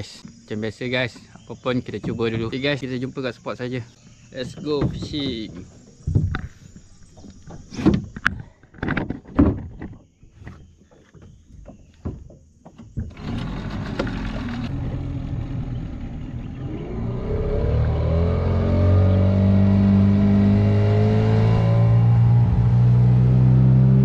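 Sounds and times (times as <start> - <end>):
outboard motor running: 12.8 - 20.9.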